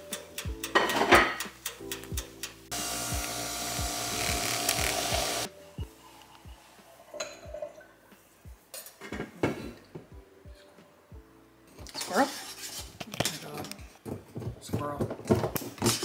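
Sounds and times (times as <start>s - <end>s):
music with kick-drum beat: 0.0s - 2.5s, 3.1s - 6.6s, 8.4s - 9.3s
milk frother whirring: 2.7s - 5.5s.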